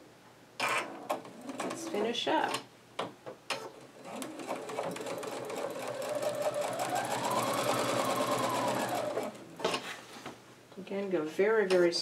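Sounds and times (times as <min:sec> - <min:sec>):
sewing machine motor whine: 0:04.0 - 0:09.5.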